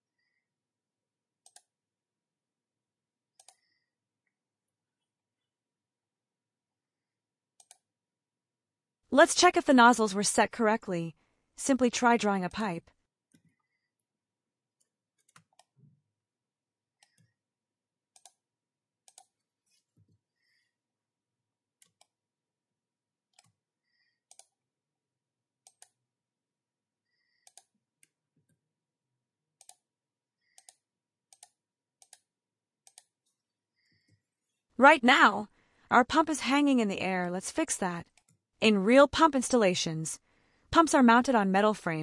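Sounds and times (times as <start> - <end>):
computer mouse clicks: 1.4 - 1.7, 3.4 - 3.8, 7.6 - 7.8, 17.0 - 17.3, 18.2 - 18.4, 19.0 - 19.3, 24.2 - 24.6, 25.6 - 26.0, 27.4 - 28.2, 29.6 - 29.8, 30.5 - 33.1.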